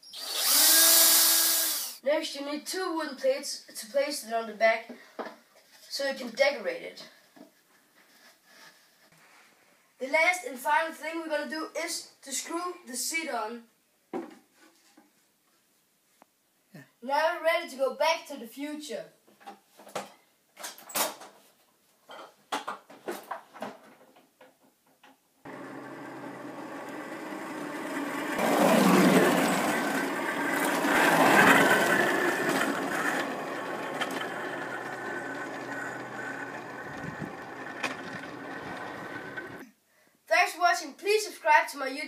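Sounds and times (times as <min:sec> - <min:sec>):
go-kart rolling on asphalt: 0:25.5 - 0:39.6.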